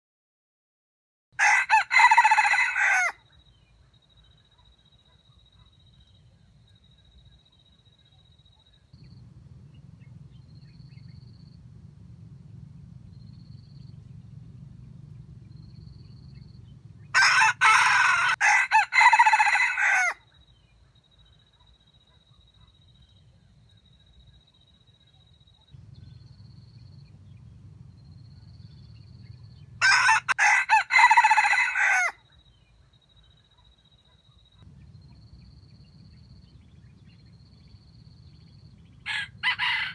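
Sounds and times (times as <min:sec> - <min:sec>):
rooster crowing: 0:01.4 - 0:03.2, 0:17.0 - 0:20.2, 0:29.8 - 0:32.2, 0:39.0 - 0:39.9.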